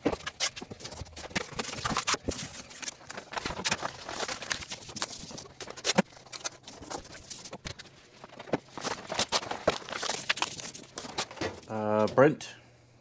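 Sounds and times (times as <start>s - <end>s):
stiff paper crinkling: 0.0s - 12.1s.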